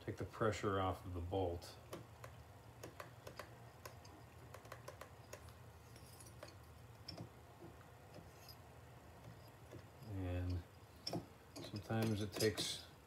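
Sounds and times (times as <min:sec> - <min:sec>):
low steady hum: 0:00.0 - 0:13.0
light metal clicks and taps: 0:01.9 - 0:08.6, 0:09.2 - 0:12.9.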